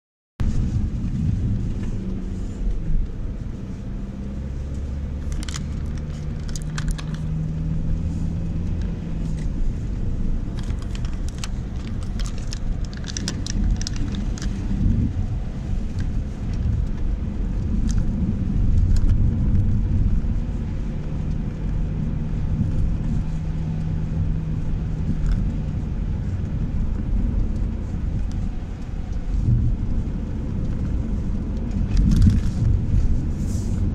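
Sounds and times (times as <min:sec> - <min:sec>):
tyre and engine rumble: 0:00.4 - 0:33.9
light clicks and rattles: 0:04.6 - 0:19.8.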